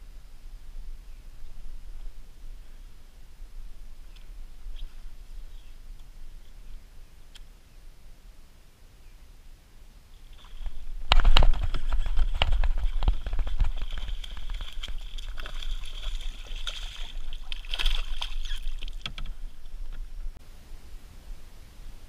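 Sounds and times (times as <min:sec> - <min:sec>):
reeds scraping against kayak hull: 0:10.3 - 0:20.3
water sloshing: 0:10.3 - 0:20.4.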